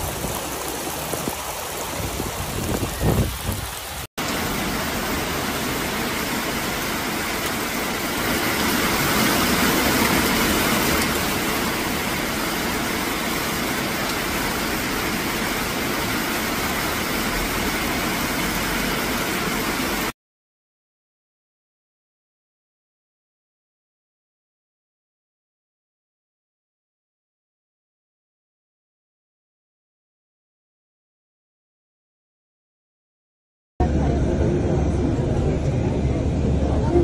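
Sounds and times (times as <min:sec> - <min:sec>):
wind buffeting microphone: 0:00.0 - 0:04.1
floodwater rushing: 0:00.0 - 0:20.1
heavy rain pouring on trees: 0:00.0 - 0:20.2.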